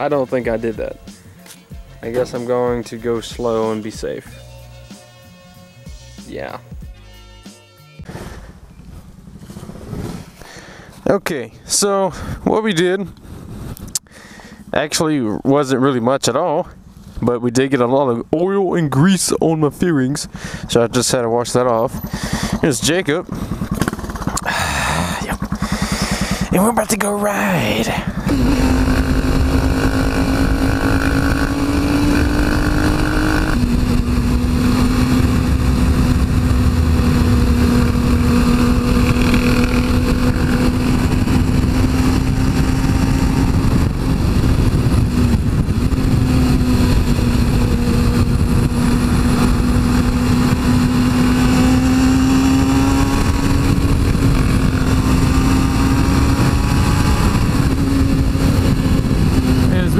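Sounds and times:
motorcycle engine revving: 0:08.1 - 0:10.5, 0:21.5 - 0:26.8, 0:27.8 - 0:59.9
wind rumble on microphone: 0:13.0 - 0:14.0, 0:28.1 - 0:59.9.

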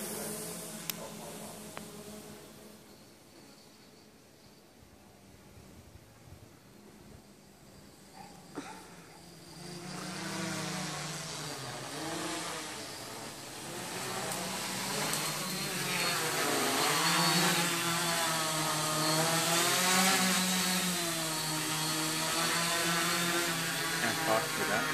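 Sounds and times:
drone propellers buzzing: 0:00.0 - 0:03.0, 0:08.0 - 0:24.9.

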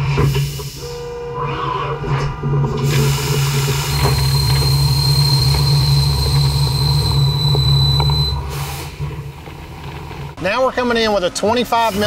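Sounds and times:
machine drone: 0:00.0 - 0:10.4
high steady whine: 0:00.2 - 0:12.0
deep hum: 0:03.7 - 0:10.4.

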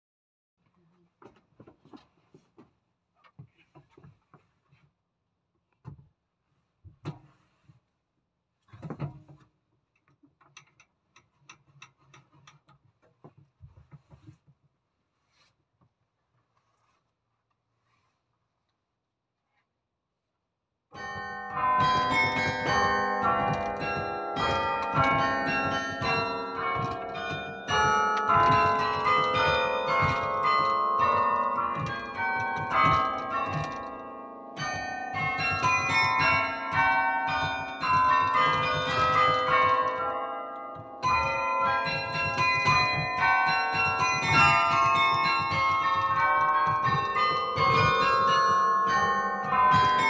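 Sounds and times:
carillon bells melody: 0:21.0 - 0:50.0.

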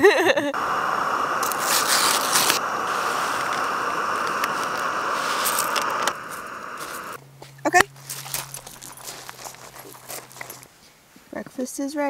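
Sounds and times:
stove burner hissing: 0:00.0 - 0:07.2
pouch tearing open: 0:08.1 - 0:10.7.

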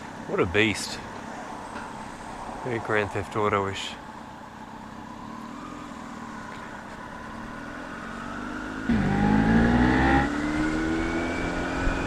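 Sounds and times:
quieter motorcycle engine hum: 0:04.0 - 0:12.0
motorcycle engine revving: 0:07.7 - 0:12.0.

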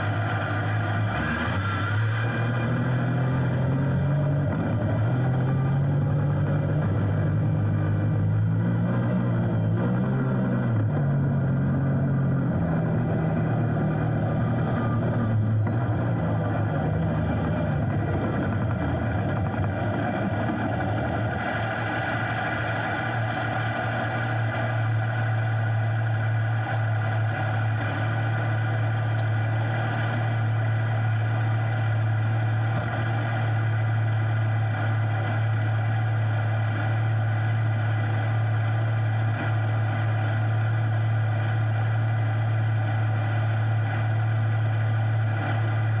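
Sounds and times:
vehicle engine idling: 0:00.0 - 0:46.0.

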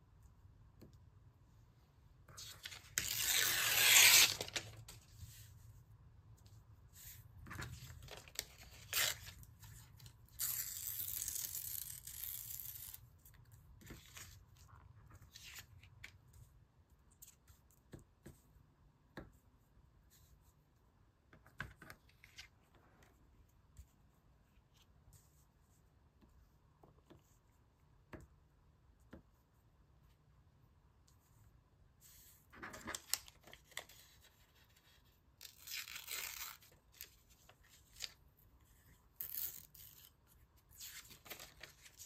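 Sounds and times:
paper tearing: 0:02.6 - 0:04.7, 0:10.3 - 0:13.0, 0:35.4 - 0:37.1
paper rustling: 0:32.1 - 0:34.9.

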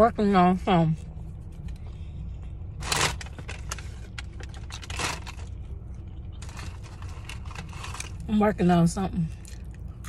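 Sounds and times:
steady low hum: 0:00.0 - 0:10.0
chewing food: 0:09.3 - 0:10.0.

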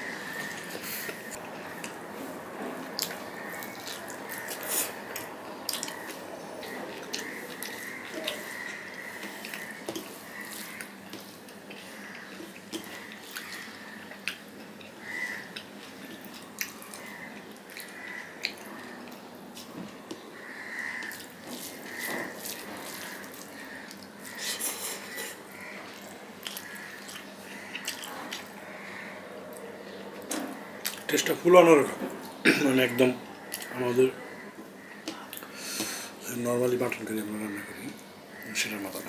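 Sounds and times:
chewing and lip-smacking: 0:03.0 - 0:08.4, 0:09.2 - 0:20.2, 0:25.9 - 0:28.6, 0:30.2 - 0:31.1.

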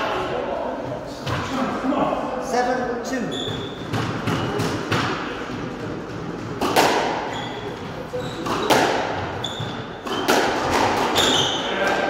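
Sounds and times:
shoes squeaking on wooden floor: 0:03.2 - 0:04.6, 0:07.2 - 0:11.8
squash ball hits: 0:03.5 - 0:12.0.

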